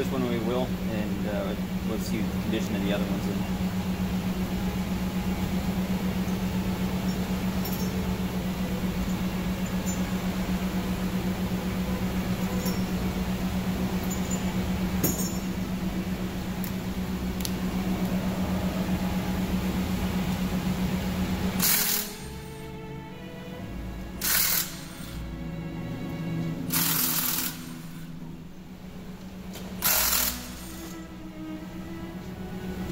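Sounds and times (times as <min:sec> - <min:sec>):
pulsing mechanical hum: 0:00.0 - 0:32.9
metallic tool clinks: 0:14.0 - 0:15.5.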